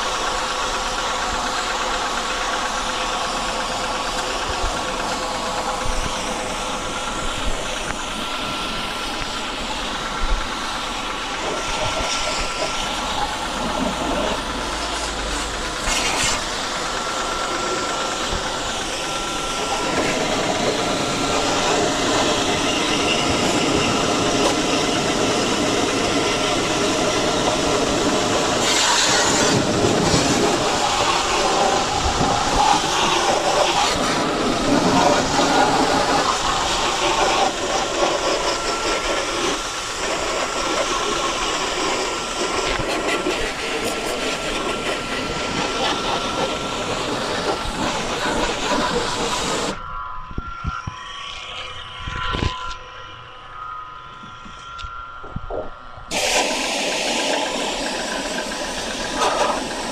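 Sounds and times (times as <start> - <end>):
pressure washer spray hissing: 0.0 - 49.8, 56.1 - 59.9.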